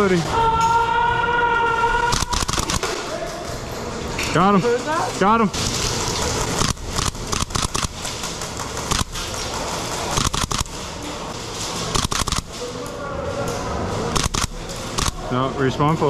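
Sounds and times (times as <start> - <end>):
airsoft guns firing: 2.0 - 3.1, 6.2 - 10.9, 11.9 - 12.6.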